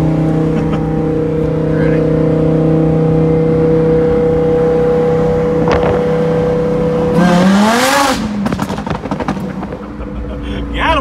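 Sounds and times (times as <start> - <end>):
sports car engine revving: 0.0 - 10.3
exhaust crackles and pops: 8.1 - 10.1.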